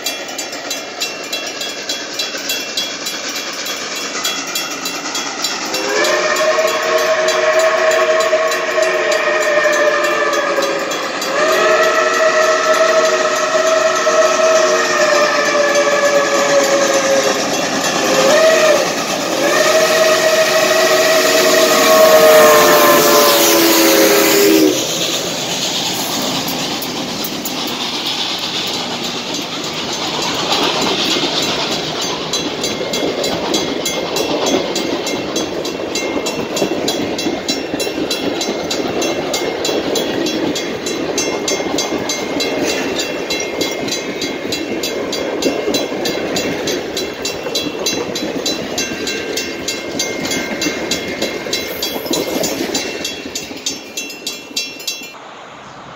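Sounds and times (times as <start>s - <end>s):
wheel clatter on rails: 0.0s - 55.2s
train coaches rolling: 0.0s - 55.9s
steam locomotive whistle: 5.3s - 27.0s.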